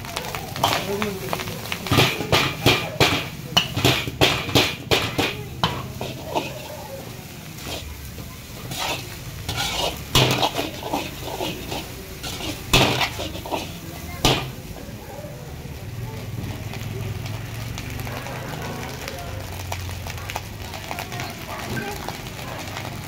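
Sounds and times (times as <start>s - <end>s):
metal ladle scraping a wok: 1.8s - 14.7s.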